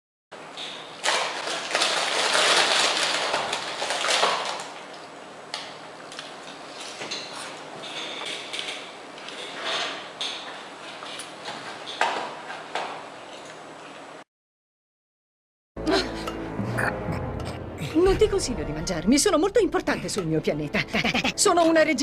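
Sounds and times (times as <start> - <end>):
plastic packaging crinkling: 1.0 - 5.2.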